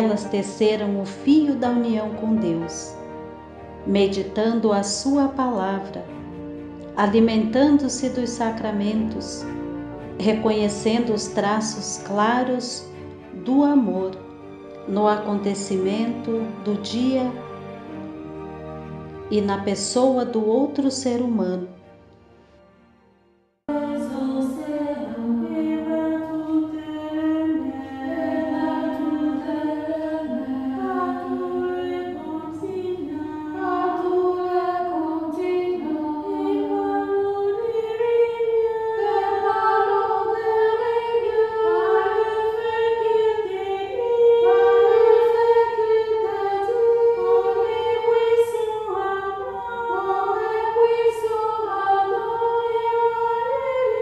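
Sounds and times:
unaccompanied choir singing: 0:23.7 - 0:54.0.

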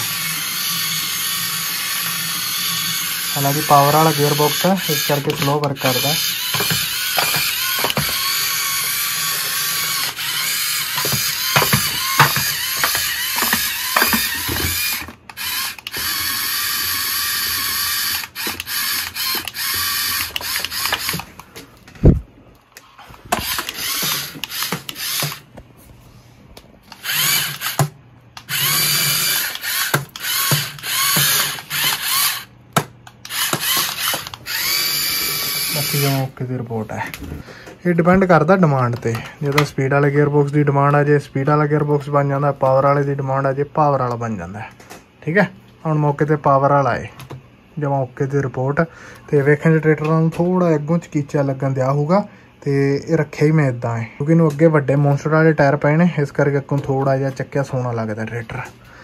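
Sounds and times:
electric motor and gearbox whining: 0:00.0 - 0:22.2, 0:22.8 - 0:25.6, 0:26.9 - 0:37.4.

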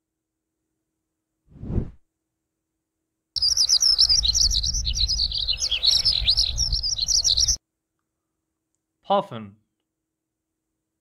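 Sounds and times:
lark singing: 0:03.4 - 0:07.6.

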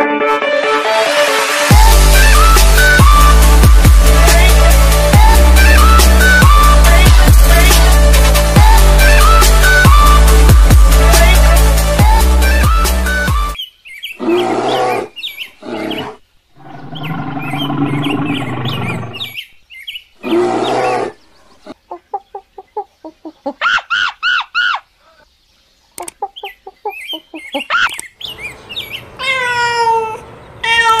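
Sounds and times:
animal clucking and chirping: 0:14.0 - 0:25.3, 0:26.0 - 0:29.0
short rising-and-falling calls: 0:15.2 - 0:19.6.

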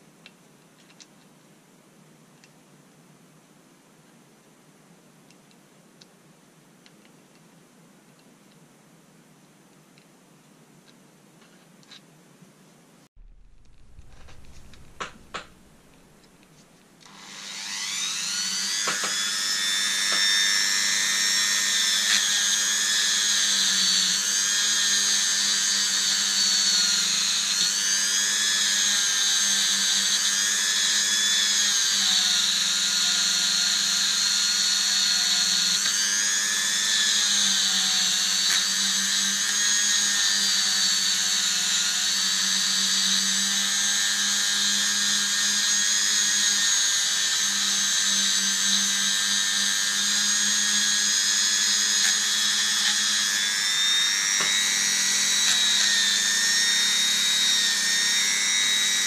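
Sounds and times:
rotary tool wire brush whine: 0:13.2 - 0:59.0.

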